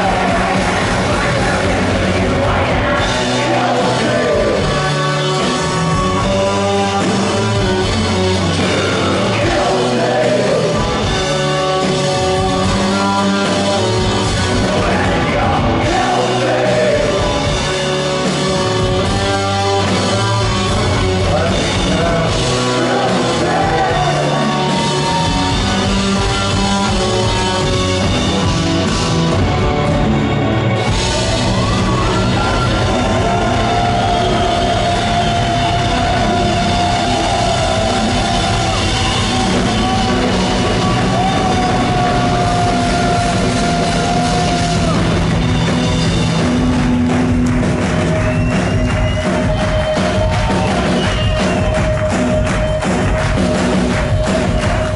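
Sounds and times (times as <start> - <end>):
man singing: 0.0 - 7.8, 8.4 - 17.9, 19.1 - 25.2, 31.2 - 40.0
live rock band playing: 0.0 - 54.9.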